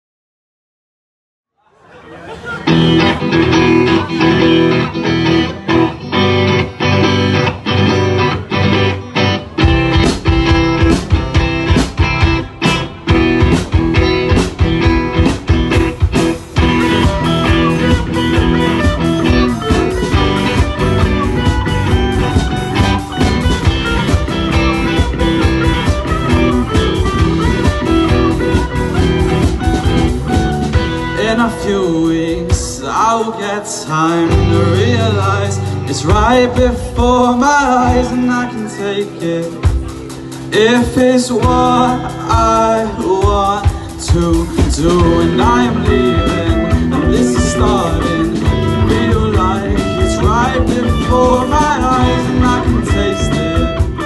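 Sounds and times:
live rock band playing: 2.0 - 54.0.

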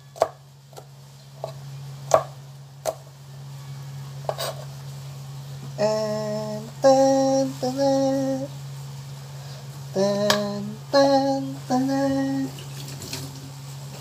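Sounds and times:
knife chopping on cutting board: 1.4 - 3.0.

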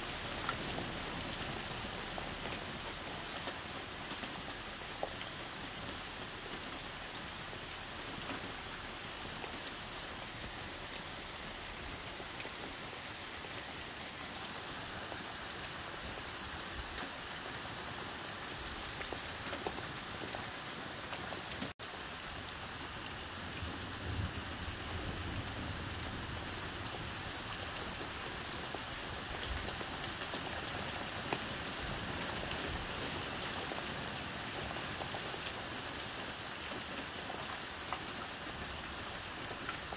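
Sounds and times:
heavy rain on a roof: 0.0 - 39.9.

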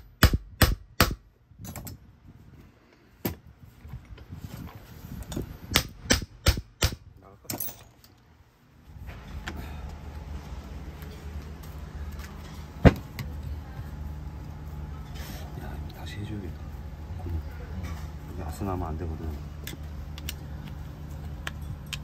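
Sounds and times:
steady low hum: 0.0 - 22.0
metal parts clanking: 7.4 - 8.2.

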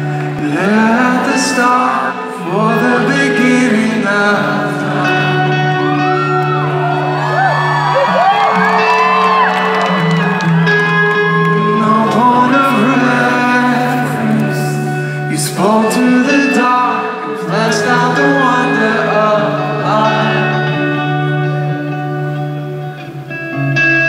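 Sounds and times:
man singing into a microphone: 0.0 - 7.2, 11.2 - 22.4
guitar: 0.0 - 24.0.

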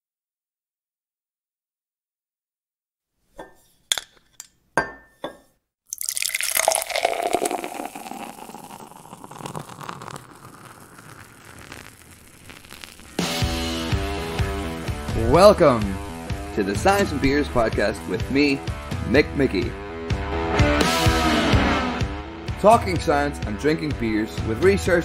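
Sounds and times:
glass clinks: 3.4 - 7.4
beer pouring and fizzing: 5.9 - 17.2.

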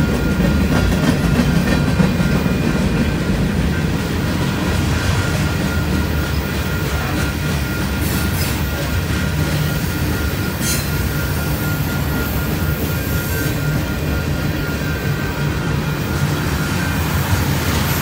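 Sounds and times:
high wheel squeal: 0.0 - 18.0
train wheels rumbling on rail: 0.0 - 18.0.

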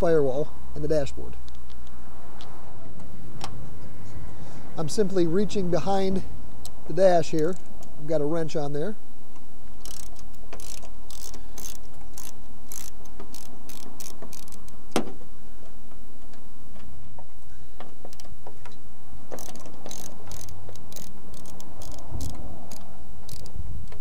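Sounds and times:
socket ratchet clicking: 9.8 - 14.8, 19.3 - 24.0.

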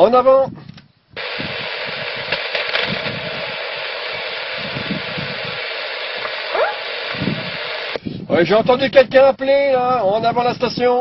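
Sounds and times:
radio receiver hiss: 1.2 - 8.0
faint radio station calling: 1.2 - 8.5.

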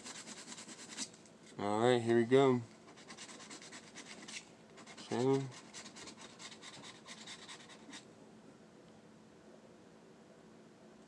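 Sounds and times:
lottery ticket being scratched: 0.0 - 1.2, 2.9 - 8.1.

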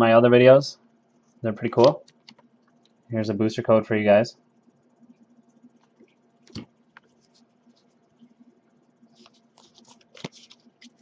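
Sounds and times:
foil wrapper crinkling: 9.2 - 11.0.

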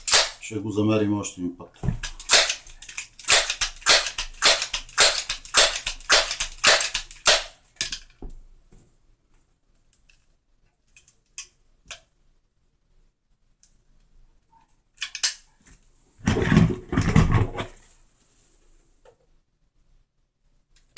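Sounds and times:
pistol handling clicks: 0.1 - 0.4, 2.0 - 8.0, 15.0 - 15.4.

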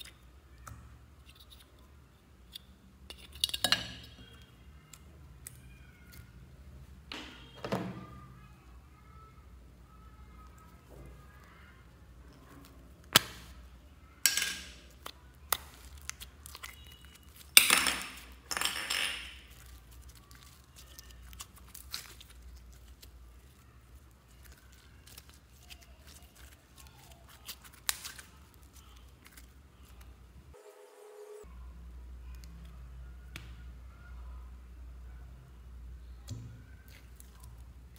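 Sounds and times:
slime being stretched: 14.9 - 17.6, 19.5 - 30.1.

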